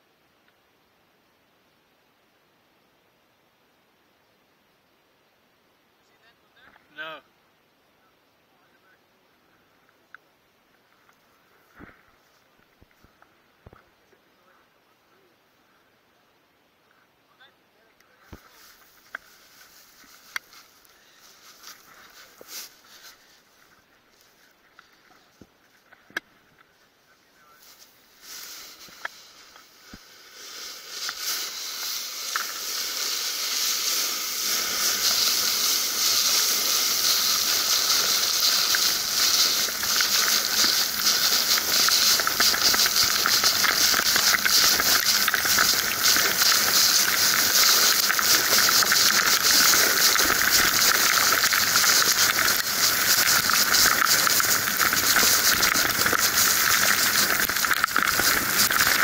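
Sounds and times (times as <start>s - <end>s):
board sliding on gritty cinder: 27.8s - 59.0s.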